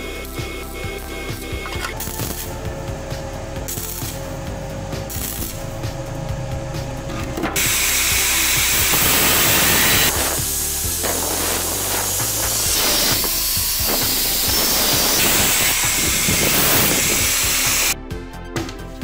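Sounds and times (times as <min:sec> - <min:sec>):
background music: 0:00.0 - 0:19.0
angle grinder cutting steel: 0:07.6 - 0:18.0.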